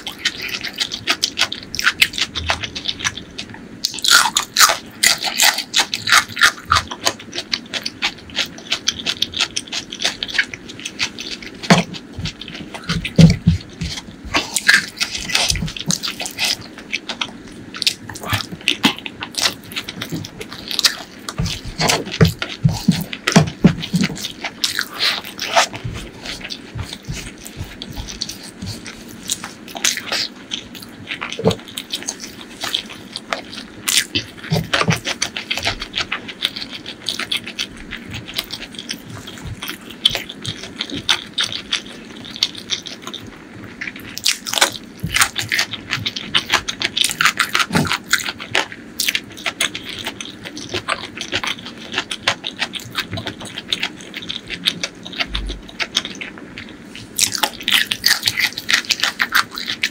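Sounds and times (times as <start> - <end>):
crunching: 0.0 - 59.9
lip smacking: 0.0 - 59.9
wet chewing: 0.0 - 59.9.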